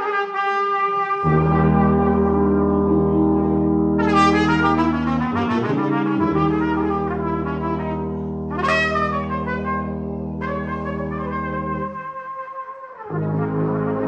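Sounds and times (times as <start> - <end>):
low brass horn chords: 0.0 - 14.0
trumpet melody: 0.0 - 14.0.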